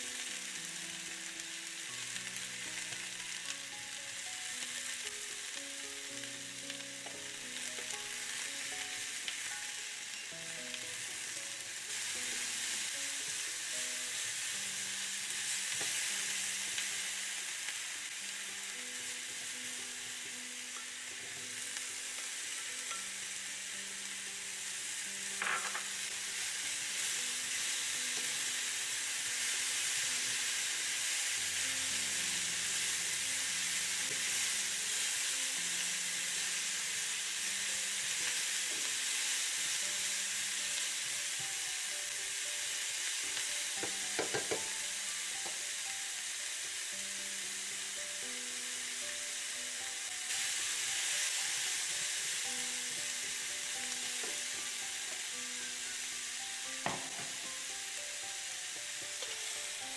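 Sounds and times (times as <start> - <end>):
vegetables sizzling in a frying pan: 0.0 - 59.9.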